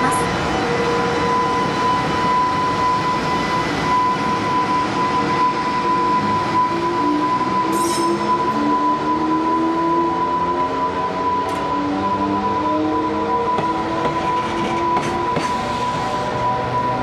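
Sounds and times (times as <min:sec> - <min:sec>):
train running-gear noise: 0:00.0 - 0:17.0.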